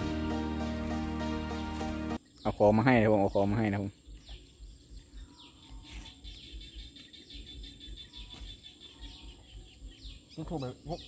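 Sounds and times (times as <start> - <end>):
birds chirping: 0.0 - 11.0
insect drone: 2.2 - 11.0.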